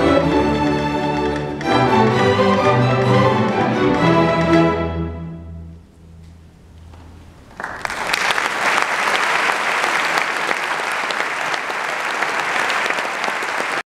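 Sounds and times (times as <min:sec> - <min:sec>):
string orchestra chord: 0:00.0 - 0:05.9
audience applauding: 0:07.5 - 0:13.8.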